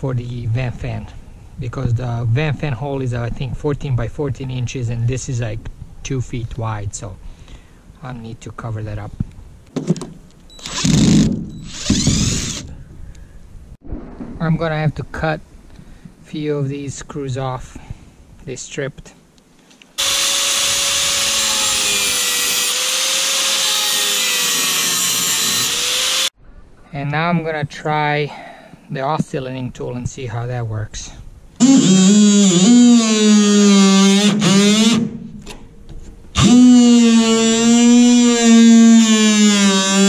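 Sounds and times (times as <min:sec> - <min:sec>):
angle grinder cutting metal: 0:20.0 - 0:26.3, 0:36.4 - 0:40.0
oscillating multi-tool buzzing whine: 0:20.0 - 0:26.3, 0:36.4 - 0:40.0.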